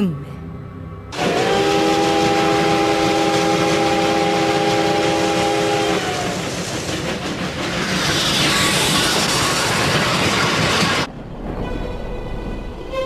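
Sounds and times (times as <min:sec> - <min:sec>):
locomotive running: 0:01.1 - 0:13.0
steam locomotive chime whistle: 0:01.2 - 0:06.4.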